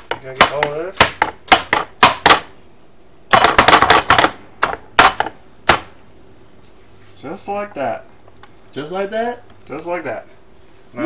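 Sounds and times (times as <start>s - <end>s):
knife chopping on plastic board: 0.0s - 2.5s, 3.3s - 6.0s.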